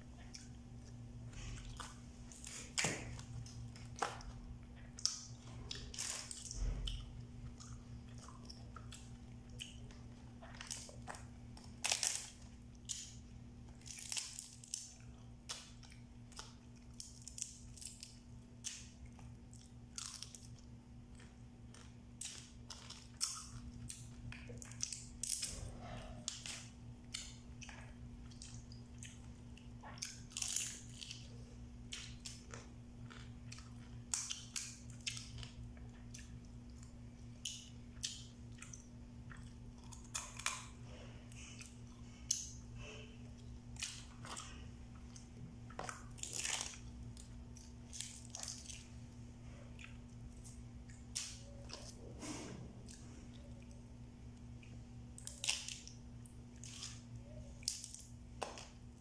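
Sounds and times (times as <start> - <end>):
chewing: 0.1 - 59.0
crab shells cracking: 10.6 - 20.6, 54.4 - 59.0.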